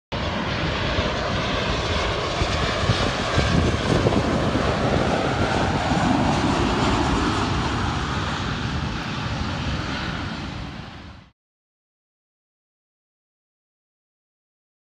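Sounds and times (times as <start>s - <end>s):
jet airliner engines: 0.1s - 11.4s.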